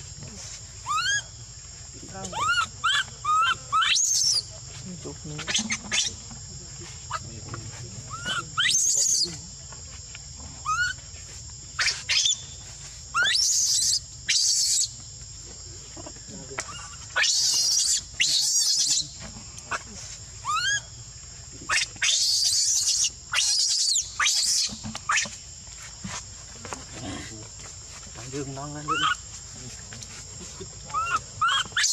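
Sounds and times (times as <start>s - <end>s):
baby monkey screaming: 0.8s - 1.3s, 2.2s - 4.5s, 5.4s - 6.2s, 8.1s - 9.4s, 10.6s - 11.0s, 11.8s - 12.5s, 13.1s - 15.0s, 16.6s - 20.9s, 21.6s - 25.4s, 28.8s - 29.3s, 30.9s - 31.9s.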